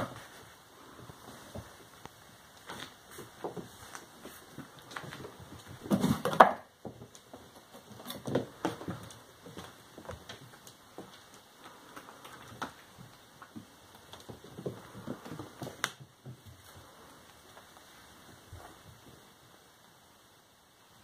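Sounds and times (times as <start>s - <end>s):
kittens pattering on wooden floor: 0.0s - 19.6s
light thumps and scrapes: 2.7s - 10.4s.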